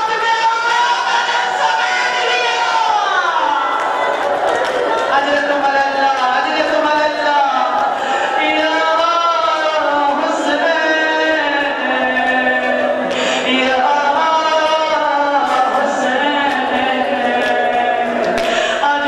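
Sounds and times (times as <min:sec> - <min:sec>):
person chanting a slow lament: 0:00.0 - 0:04.1, 0:05.0 - 0:19.0
breaths between phrases: 0:07.8 - 0:08.4, 0:13.0 - 0:13.5, 0:18.4 - 0:18.9.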